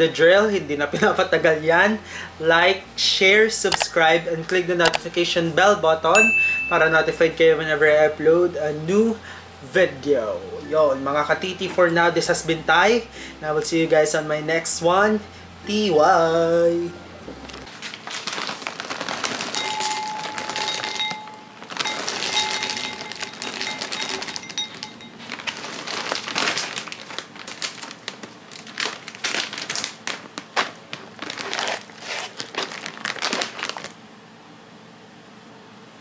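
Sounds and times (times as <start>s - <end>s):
bag crinkling: 17.6s - 34.0s
popcorn rattling into glass bowl: 18.2s - 30.3s.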